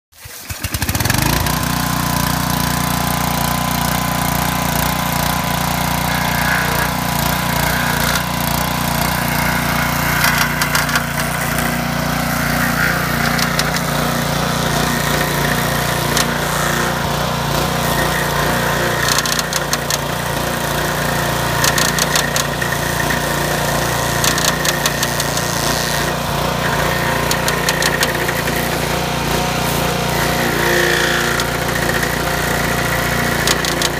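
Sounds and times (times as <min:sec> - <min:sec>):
small gas engine running: 0:00.1 - 0:33.9
cutter grinding wood clattering: 0:00.2 - 0:33.9.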